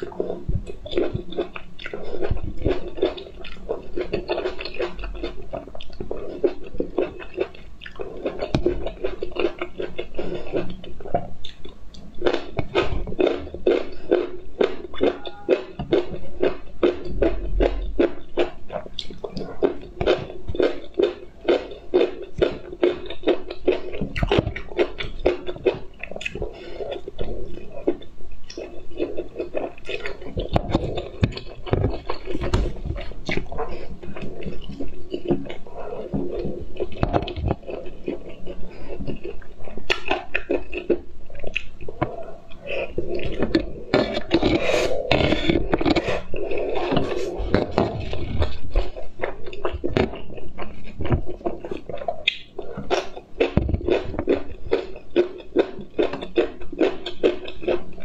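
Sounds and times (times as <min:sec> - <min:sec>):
wet chewing and smacking: 0:00.0 - 0:58.0
noodles slurped: 0:26.0 - 0:50.2.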